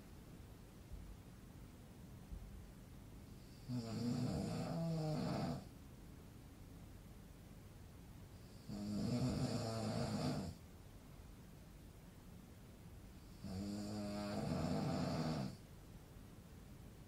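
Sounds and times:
man snoring: 3.5s - 5.7s, 8.5s - 10.6s, 13.3s - 15.6s.

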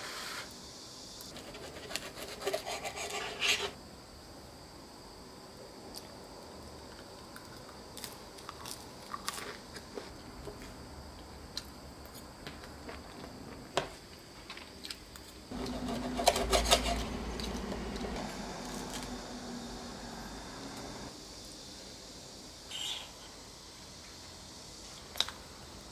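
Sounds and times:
knife and fork sawing crust: 1.3s - 3.8s, 15.5s - 19.1s
biting and chewing crisp bread: 6.9s - 10.1s.

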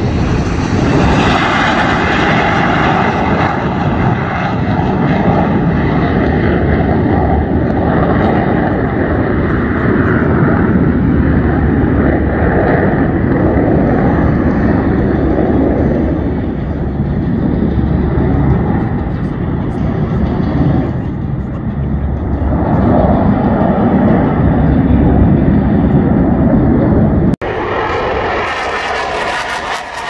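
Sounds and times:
fighter jets flying past: 0.0s - 30.0s.

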